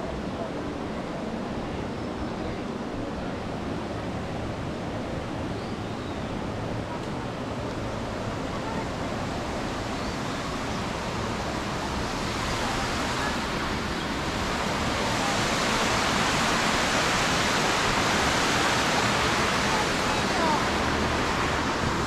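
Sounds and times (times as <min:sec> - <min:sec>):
steady rushing noise: 0:06.2 - 0:22.0.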